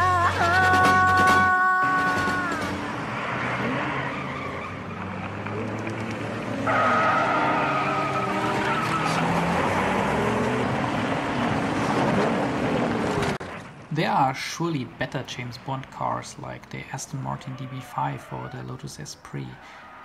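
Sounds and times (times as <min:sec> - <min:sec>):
car engine revving: 0:00.0 - 0:13.8
tyres skidding: 0:00.0 - 0:20.0
sharp tyre squeal: 0:02.0 - 0:05.3, 0:06.6 - 0:10.4, 0:17.1 - 0:18.8, 0:19.4 - 0:20.0.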